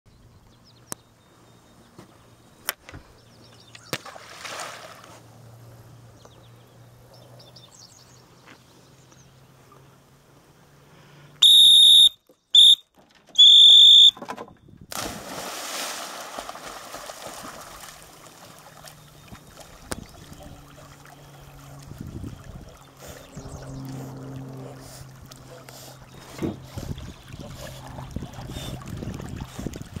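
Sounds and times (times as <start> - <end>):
water splashing: 3.9 - 5.2, 14.9 - 23.2, 24.1 - 30.0
dog whistle blasts: 11.4 - 14.2.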